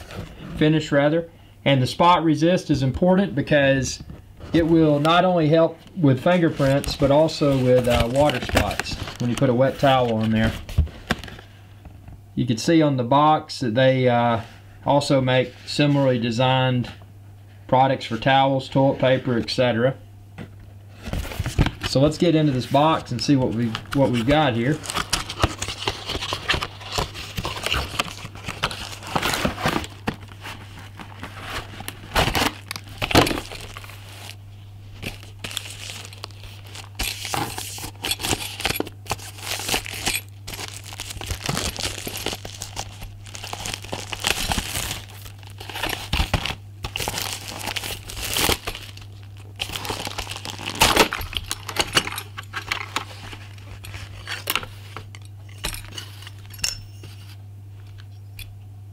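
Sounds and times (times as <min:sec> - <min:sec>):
steady low hum: 0:00.0 - 0:58.9
plastic wrap crinkling and tearing: 0:06.2 - 0:11.2, 0:23.0 - 0:34.4, 0:35.0 - 0:54.7.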